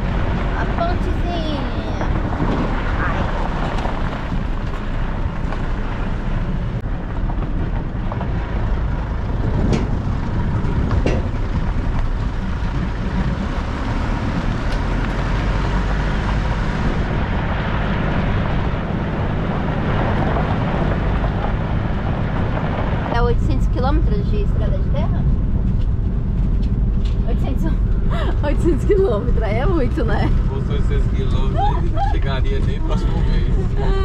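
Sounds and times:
vehicle engine and road noise: 0.0s - 34.0s.

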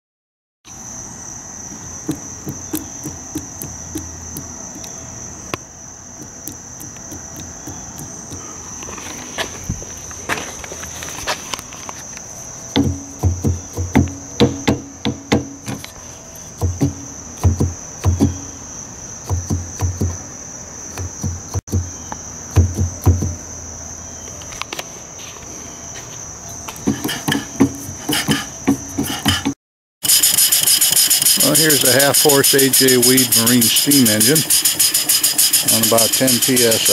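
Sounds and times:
cricket trilling: 0.7s - 36.9s
steam engine knocking and chuffing: 29.0s - 36.9s
steady high-pitched tone: 30.0s - 36.9s.

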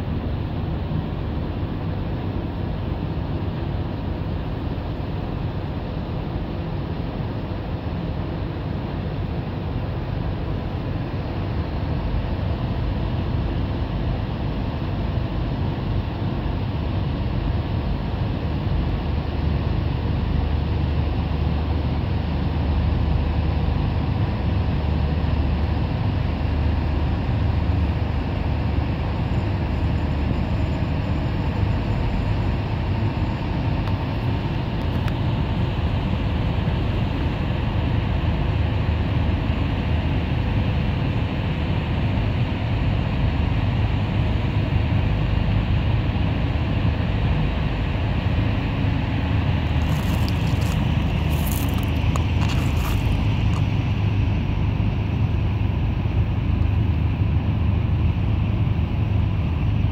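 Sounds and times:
boat engine droning: 19.6s - 59.8s
wind noise: 48.2s - 55.0s.

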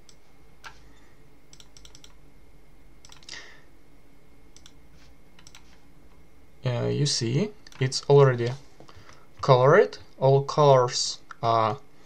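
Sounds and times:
faint steady hum: 0.0s - 12.0s
mouse and keyboard clicks: 1.5s - 2.2s, 3.0s - 3.4s, 4.6s - 4.8s, 5.4s - 5.8s.

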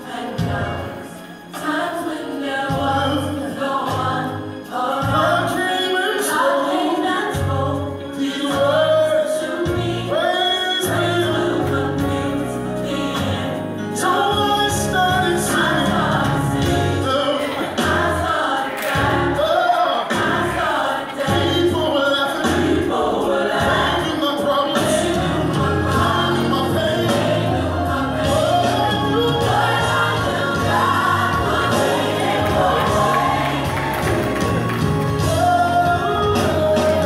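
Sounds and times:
voices singing gospel song: 0.0s - 37.0s
steady bass line: 24.8s - 37.0s.

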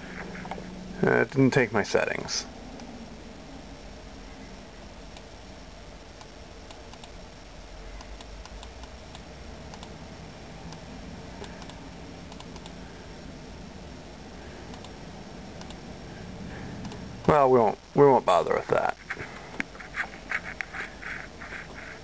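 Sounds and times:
steady low hum: 0.0s - 22.0s
computer control clicks: 11.4s - 12.8s.

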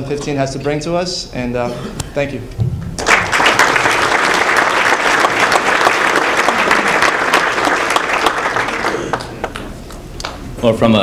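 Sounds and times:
audience applauding: 3.0s - 9.7s.

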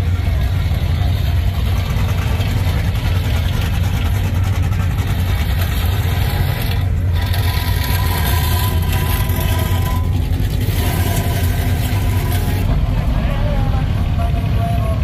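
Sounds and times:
truck engines idling: 0.0s - 15.0s.

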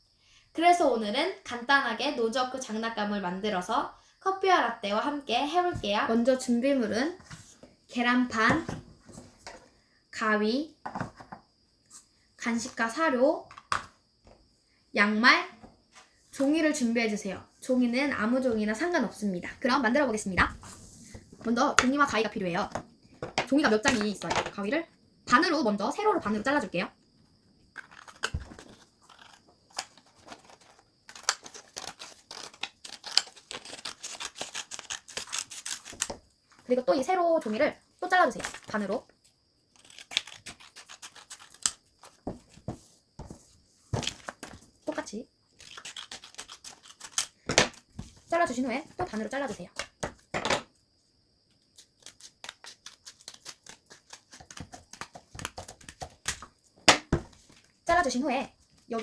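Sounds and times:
paper rustling: 27.8s - 36.1s
scissors snipping paper: 30.3s - 36.1s, 39.8s - 41.8s, 45.6s - 47.3s, 51.9s - 56.0s.

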